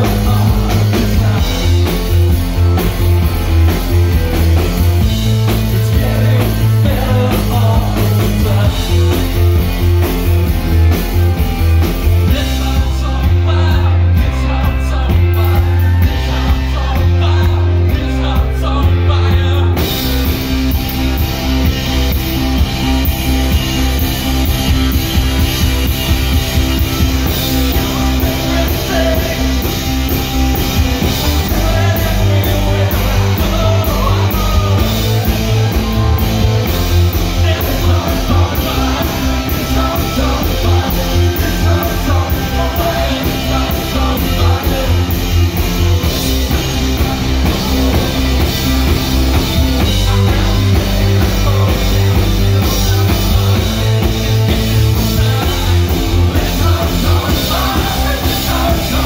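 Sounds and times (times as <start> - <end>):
man singing: 0.0 - 3.0, 3.7 - 10.2, 11.8 - 20.5, 25.8 - 59.0
distorted electric guitar: 0.0 - 59.0
drum kit: 0.0 - 59.0
keyboards: 0.0 - 59.0.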